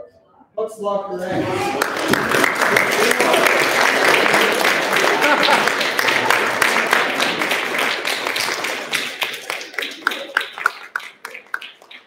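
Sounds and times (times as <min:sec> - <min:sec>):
voices: 0:00.0 - 0:11.7
small group applauding: 0:01.3 - 0:12.0.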